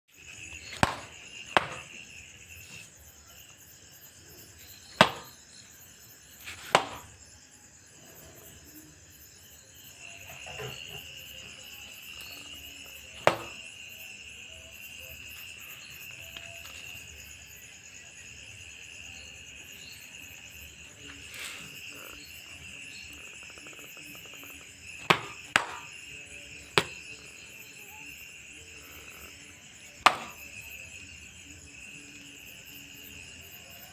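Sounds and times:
crickets chirring: 0:00.1 - 0:33.9
sandal slapping: 0:00.6 - 0:02.0, 0:05.0 - 0:05.4, 0:06.5 - 0:07.1, 0:13.2 - 0:13.6, 0:25.0 - 0:26.0, 0:26.8 - 0:27.1, 0:30.0 - 0:30.4.

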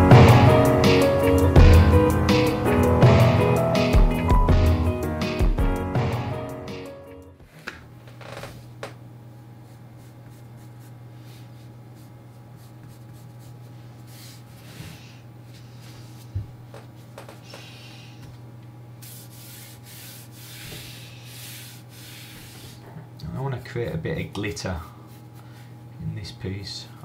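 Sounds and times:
pencil scratching on paper: 0:10.0 - 0:14.8, 0:19.0 - 0:22.8.

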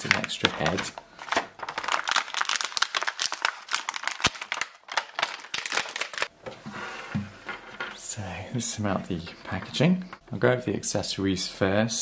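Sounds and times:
plastic packaging crinkling: 0:00.0 - 0:06.3.

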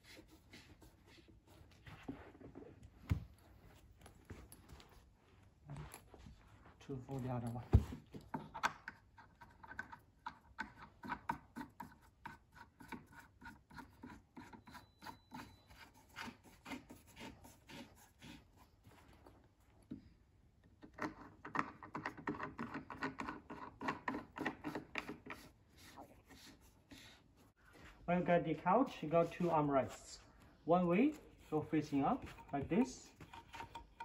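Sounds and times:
scraping and rubbing strokes: 0:23.2 - 0:34.0.

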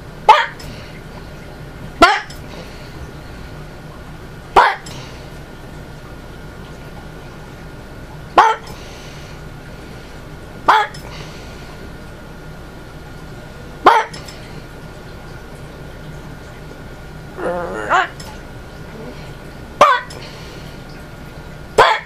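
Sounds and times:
small dog barking: 0:00.3 - 0:00.7, 0:04.6 - 0:05.0, 0:21.8 - 0:22.0.

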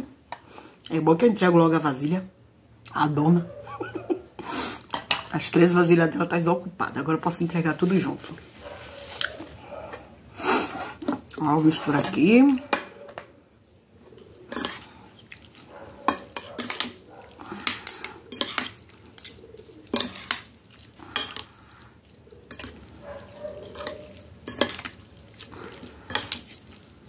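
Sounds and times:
forks clinking and scraping glass: 0:14.5 - 0:14.9, 0:16.0 - 0:18.8, 0:22.5 - 0:25.0.

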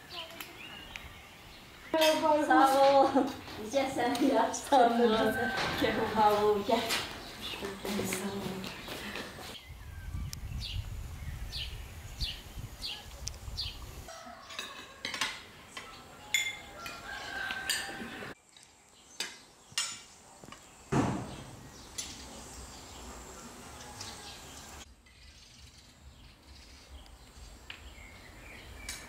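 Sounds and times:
bird chirping: 0:00.0 - 0:02.1, 0:20.6 - 0:29.0
low wind rumble: 0:09.6 - 0:14.1
cutlery clinking on plates: 0:14.4 - 0:18.2
sharp knock: 0:20.9 - 0:21.5.

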